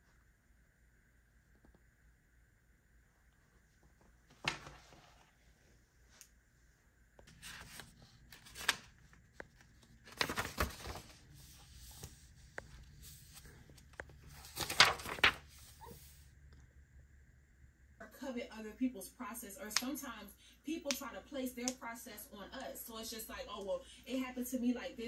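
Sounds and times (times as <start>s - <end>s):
paper pages rustling: 4.3s - 5.4s, 7.2s - 16.2s.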